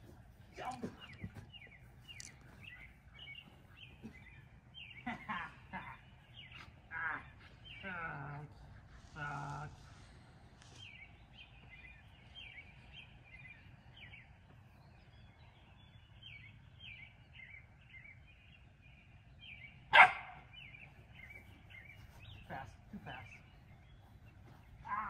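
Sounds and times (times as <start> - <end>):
quiet outdoor background noise: 0.0 - 25.0
small birds chirping: 0.0 - 25.0.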